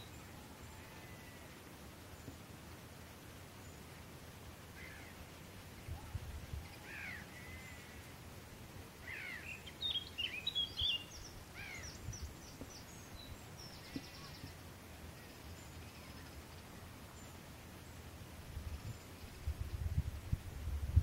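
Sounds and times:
bird trill: 9.1 - 14.6
birds chirping and whistling: 9.1 - 14.6.

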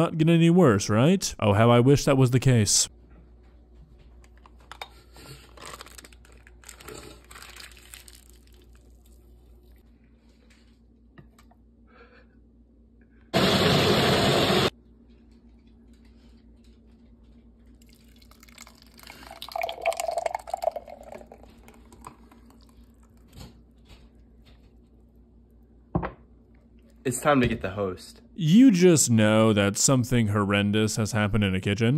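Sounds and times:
thick smoothie pouring: 5.6 - 9.8, 17.8 - 23.3
blender whirring: 13.4 - 14.7.

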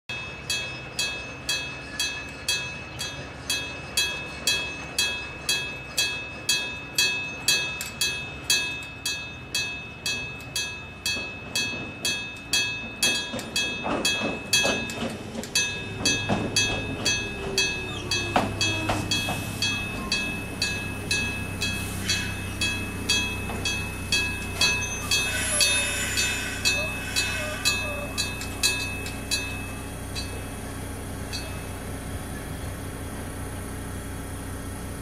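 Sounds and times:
low train hum: 0.1 - 35.0
train wheels knocking over rail joints: 0.3 - 31.8
level crossing alarm ringing: 0.3 - 32.0
wheel squeal: 13.0 - 30.3.

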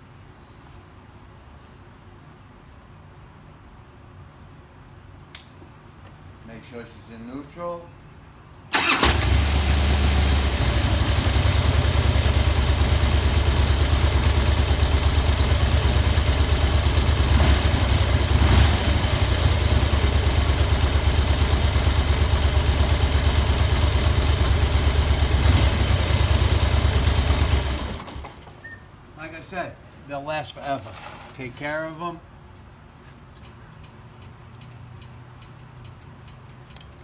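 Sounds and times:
motorcycle engine idling: 9.3 - 28.4.

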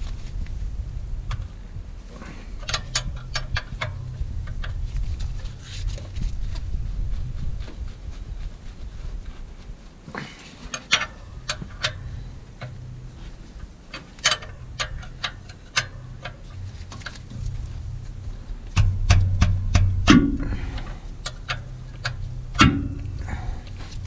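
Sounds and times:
steady low hum: 0.0 - 24.0
wrench clicking on metal: 2.6 - 4.8, 10.7 - 12.0, 13.9 - 17.2, 18.7 - 23.3.

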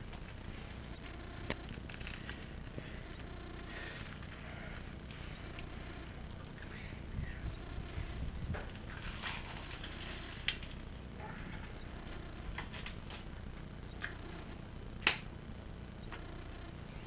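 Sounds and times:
man eating a sandwich: 0.0 - 14.7
loud finger snap: 15.0 - 15.3.

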